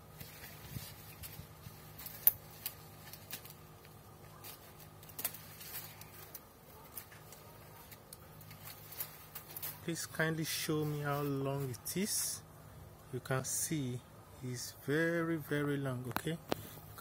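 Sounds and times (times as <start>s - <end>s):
faint rustling: 0.0s - 12.0s
low steady hum: 0.0s - 17.0s.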